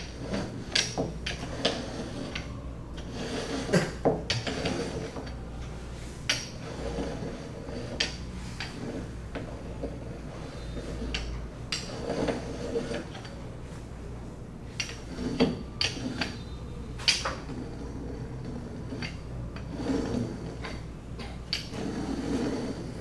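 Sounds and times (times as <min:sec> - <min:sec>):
rolling pin rolling dough: 0:00.0 - 0:23.0
steady low hum: 0:00.0 - 0:23.0.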